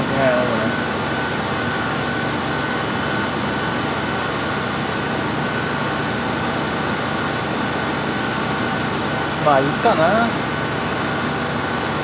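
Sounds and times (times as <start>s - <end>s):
equipment and fans humming: 0.0s - 12.0s.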